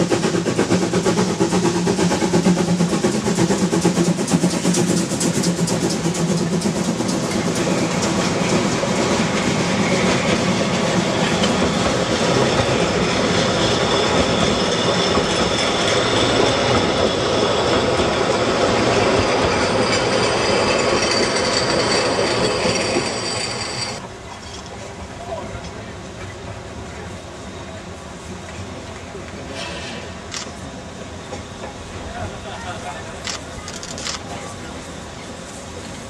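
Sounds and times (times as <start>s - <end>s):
steam train passing: 0.0s - 36.0s
high wheel squeal: 7.1s - 24.0s.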